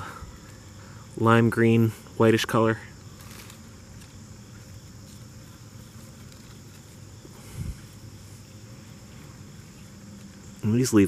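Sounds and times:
insects chirping: 0.0s - 11.0s.

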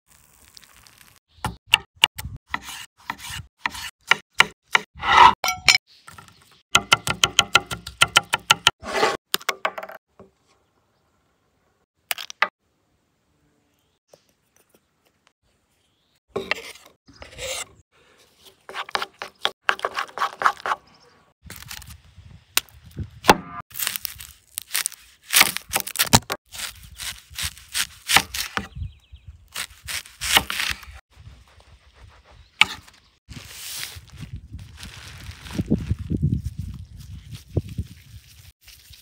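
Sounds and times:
wrapping rustling: 33.3s - 36.6s.

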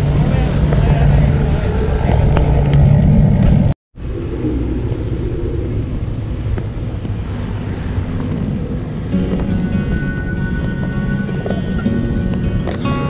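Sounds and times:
road traffic rumble: 0.0s - 13.0s
motorcycle engine running: 8.0s - 13.0s.

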